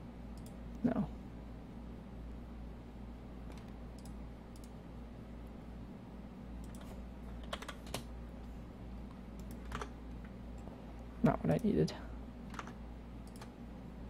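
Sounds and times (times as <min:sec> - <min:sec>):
low steady hum: 0:00.0 - 0:14.0
computer keyboard keystrokes: 0:06.6 - 0:08.1, 0:09.4 - 0:09.9, 0:12.5 - 0:13.5.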